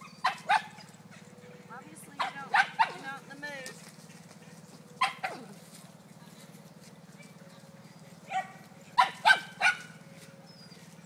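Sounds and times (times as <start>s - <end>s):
puppy barking: 0.0s - 0.9s, 2.2s - 3.2s, 5.0s - 5.6s, 8.3s - 10.0s
low background hum: 0.0s - 11.0s.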